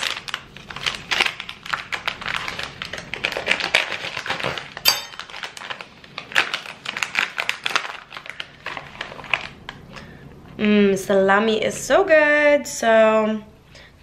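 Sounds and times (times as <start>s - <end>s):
sharp clink: 4.9s - 5.3s.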